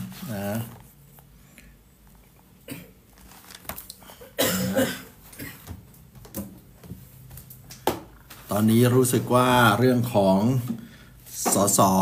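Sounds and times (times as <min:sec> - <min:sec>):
man coughing: 0:02.6 - 0:03.0, 0:04.1 - 0:05.7.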